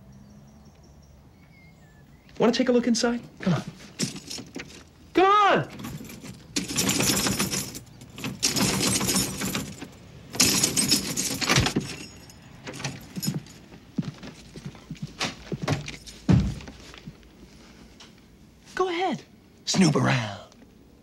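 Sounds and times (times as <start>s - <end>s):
keys jangling in door lock: 3.9s - 5.0s, 5.7s - 13.7s
thud: 15.7s - 16.8s.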